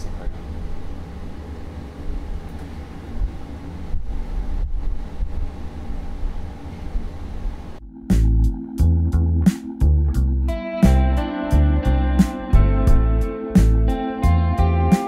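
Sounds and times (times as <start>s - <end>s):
freight lift rumble and hum: 0.0s - 10.5s.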